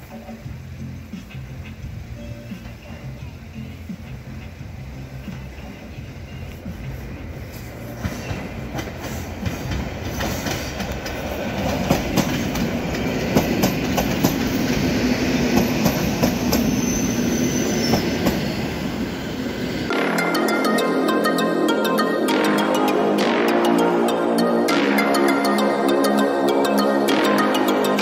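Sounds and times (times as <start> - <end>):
train wheels clicking over rail joints: 0.0 - 19.4.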